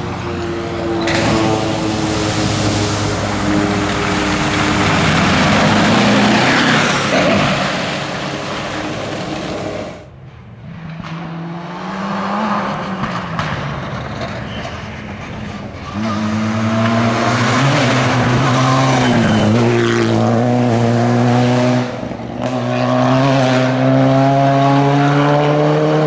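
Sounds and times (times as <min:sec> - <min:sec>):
distant turbocharged car engine: 0:00.0 - 0:10.1
rally car engine at full throttle: 0:00.0 - 0:26.0
water spray and flung gravel: 0:01.1 - 0:10.1.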